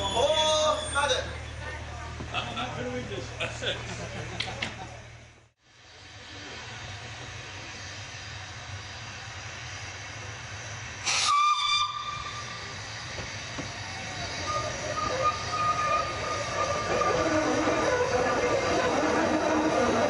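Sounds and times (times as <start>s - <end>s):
steam hissing: 5.7s - 20.0s
steam whistle blast: 11.0s - 12.6s, 14.3s - 19.8s.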